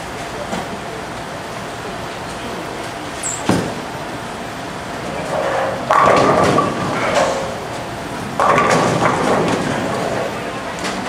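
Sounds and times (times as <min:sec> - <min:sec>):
bowling ball rolling on wooden lane: 0:05.0 - 0:11.0
bowling pins crashing: 0:05.1 - 0:11.0.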